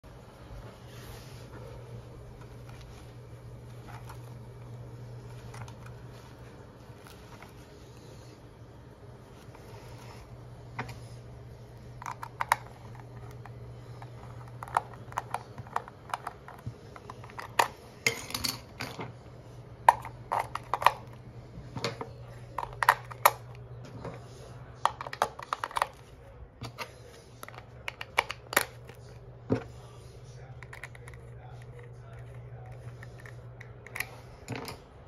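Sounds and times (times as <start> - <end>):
faint low hum: 0.0 - 35.0.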